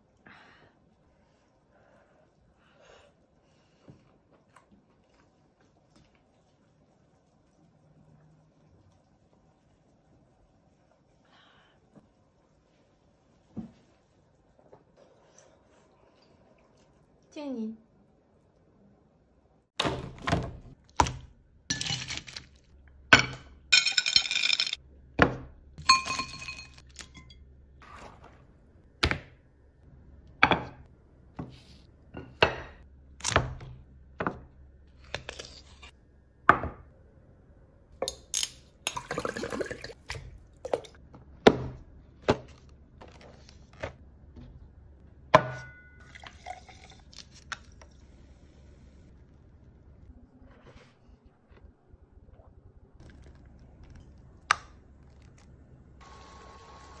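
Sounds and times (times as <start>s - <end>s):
tableware knocks and clinks: 45.4s - 46.0s
crackling: 52.9s - 56.0s.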